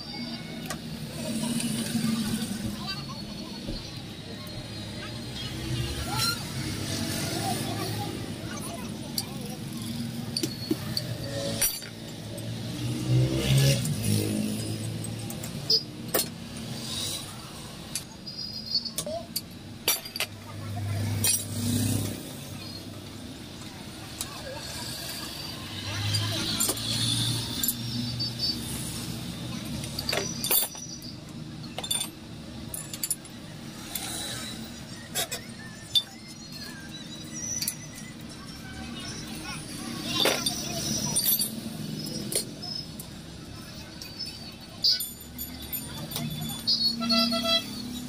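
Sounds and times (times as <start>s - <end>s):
sharp metal clinks: 24.3s - 48.0s.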